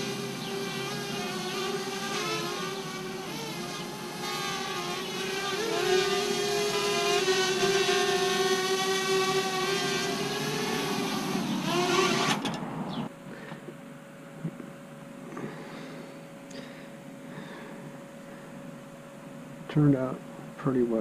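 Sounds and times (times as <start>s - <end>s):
quadcopter propellers whining: 0.0s - 13.1s.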